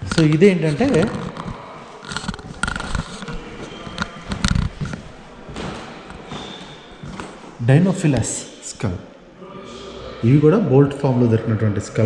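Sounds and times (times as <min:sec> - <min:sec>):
footsteps on hard floor: 0:02.3 - 0:07.6.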